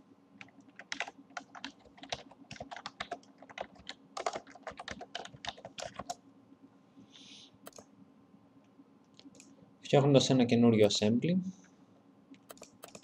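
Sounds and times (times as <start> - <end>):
typing on computer keyboard: 0.4 - 6.2, 12.5 - 13.0.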